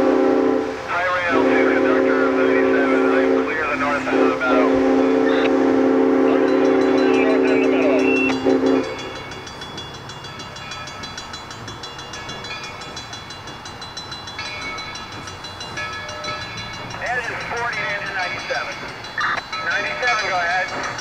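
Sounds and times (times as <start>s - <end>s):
steam locomotive whistle blast: 0.0s - 9.1s
faint steady ringing: 6.4s - 21.0s.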